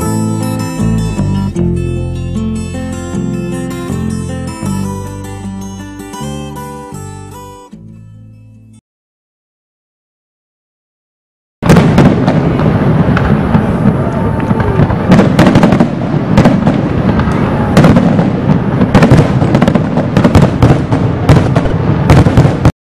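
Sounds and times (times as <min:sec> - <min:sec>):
fireworks bangs and crackles: 0:11.6 - 0:22.7.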